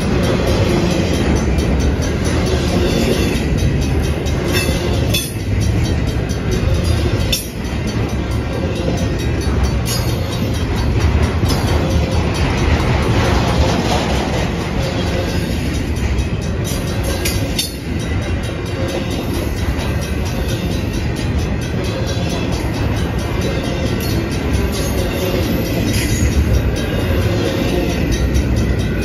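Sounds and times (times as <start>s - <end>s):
freight train wheels rumbling: 0.0s - 29.0s
train cars clanking: 0.0s - 29.0s.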